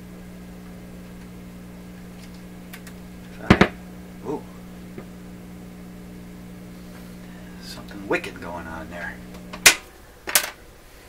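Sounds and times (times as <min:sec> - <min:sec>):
radio receiver steady hum: 0:00.0 - 0:10.4
loud sharp pops: 0:03.4 - 0:03.8.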